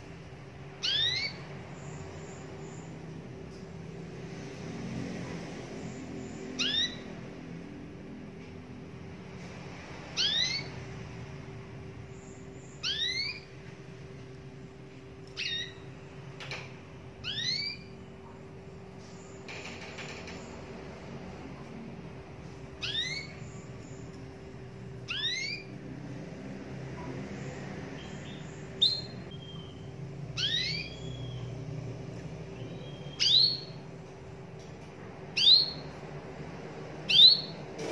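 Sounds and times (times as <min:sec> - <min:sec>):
faint steady hum: 0:00.0 - 0:37.9.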